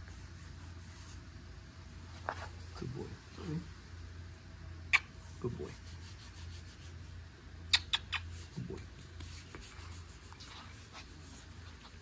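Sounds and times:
soft rubbing and scraping: 0.0 - 3.6, 8.3 - 12.0
kissing smacks: 4.9 - 5.2, 7.7 - 8.4.

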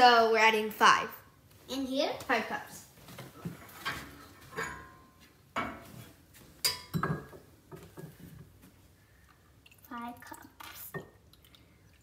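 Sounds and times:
cups and utensils clinking: 3.4 - 6.0, 6.6 - 8.3, 10.9 - 11.3.

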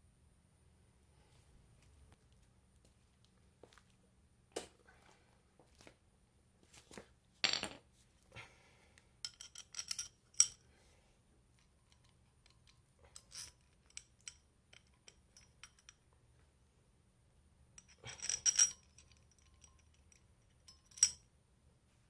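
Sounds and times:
metal parts clicking and clinking: 9.2 - 10.6, 11.6 - 16.0, 17.8 - 21.2.

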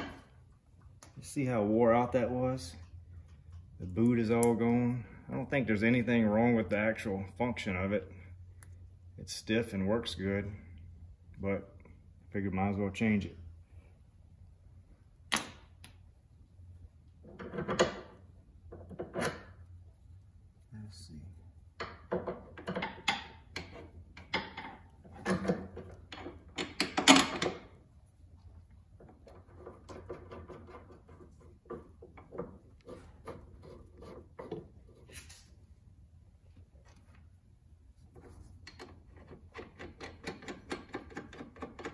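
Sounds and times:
wrench clicking and scraping metal: 38.6 - 41.9.

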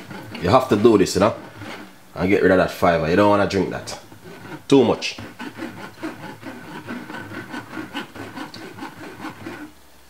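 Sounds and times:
metal spoon scraping a mesh sieve: 0.0 - 1.9, 4.1 - 9.7.

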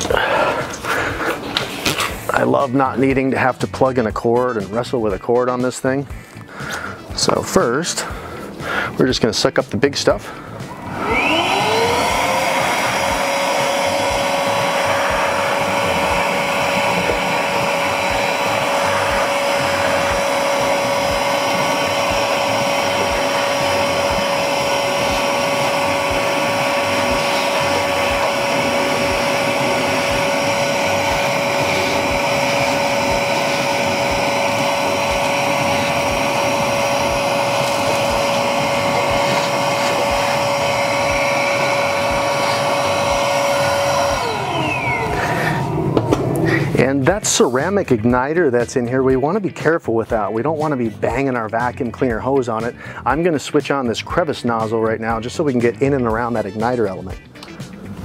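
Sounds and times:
vacuum cleaner whining: 0.0 - 49.3
rushing air through hose: 10.2 - 47.7.

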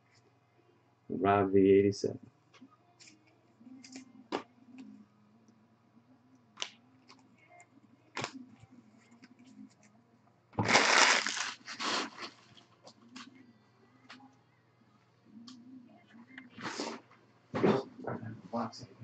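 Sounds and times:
cards rustling: 10.6 - 12.5.

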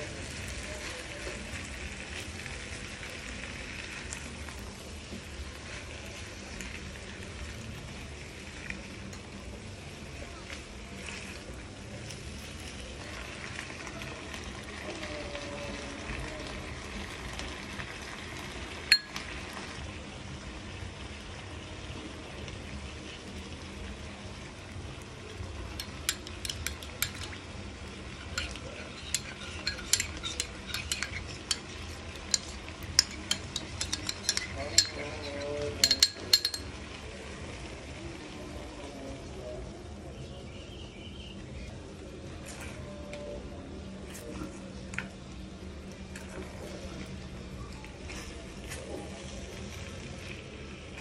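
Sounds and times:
spatula turning food: 0.0 - 19.9, 20.5 - 39.4, 40.2 - 51.0
food sizzling in a frying pan: 0.0 - 51.0
metal spoon clinking on glass bowl: 18.9 - 19.3, 25.8 - 27.4, 28.3 - 36.8.

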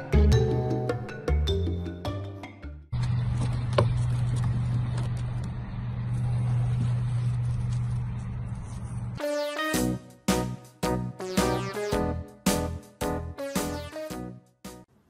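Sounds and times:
background music: 0.0 - 2.9, 9.2 - 14.9
low mechanical hum: 3.0 - 9.2.

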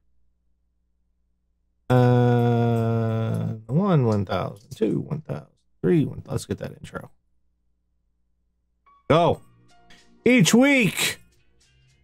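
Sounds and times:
man humming low note: 1.9 - 3.7.

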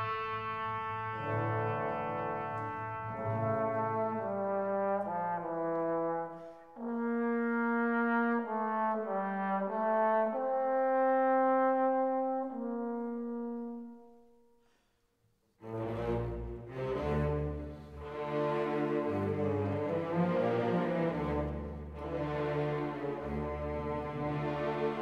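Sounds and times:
slow brass melody: 0.0 - 14.7.

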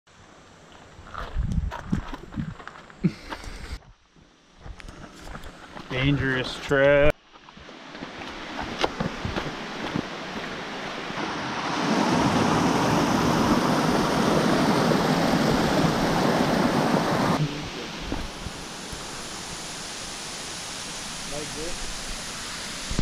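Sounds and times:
stream rushing over rocks: 7.7 - 23.0.

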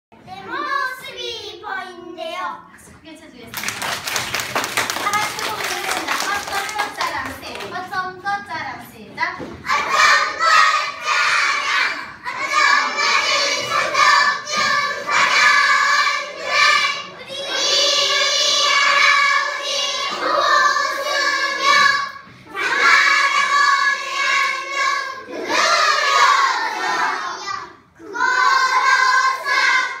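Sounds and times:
children's voices in unison: 0.2 - 2.4, 4.7 - 8.0, 9.4 - 30.0.

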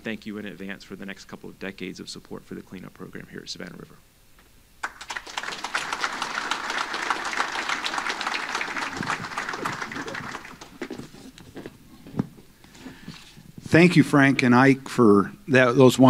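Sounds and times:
audience applauding: 4.8 - 11.1.

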